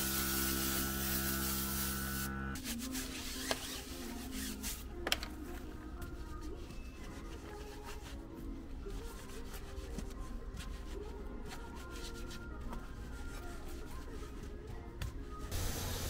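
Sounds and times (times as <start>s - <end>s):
faint background music: 0.4s - 16.0s.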